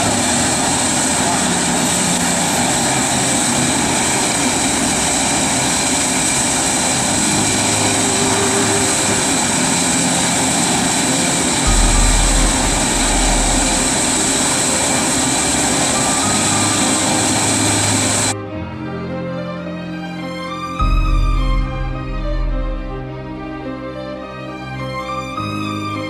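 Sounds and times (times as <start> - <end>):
burner flame and fan roar: 0.0 - 18.4
low rumble: 6.5 - 18.4, 20.8 - 23.6.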